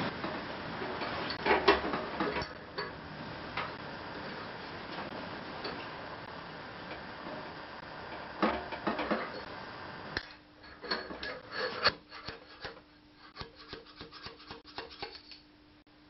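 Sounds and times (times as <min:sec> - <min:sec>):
tool scraping sheet metal: 0:11.0 - 0:15.4.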